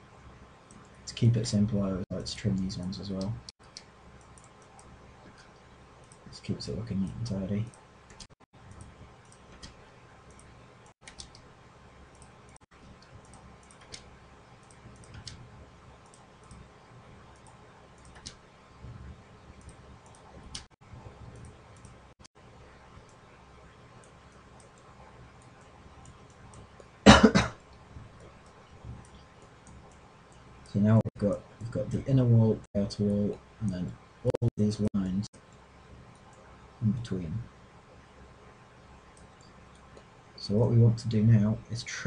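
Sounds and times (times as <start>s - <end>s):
faint low hum: 0.0s - 42.0s
computer mouse clicking: 0.6s - 1.2s, 2.5s - 11.5s, 12.1s - 22.2s, 24.0s - 27.0s, 27.7s - 30.6s, 39.0s - 40.1s.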